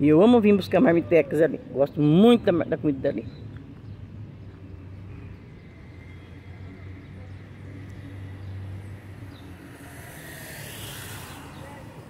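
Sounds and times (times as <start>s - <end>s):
low rumble of traffic: 0.0s - 12.0s
hiss: 9.6s - 12.0s.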